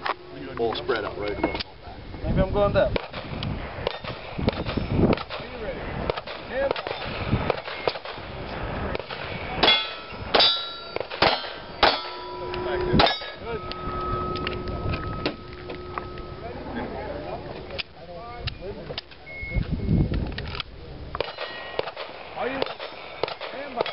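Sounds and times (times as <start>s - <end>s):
pistol shots: 3.0s - 5.5s, 6.1s - 8.3s, 8.9s - 12.2s, 21.2s - 23.9s
steel plates ringing: 9.6s - 17.6s.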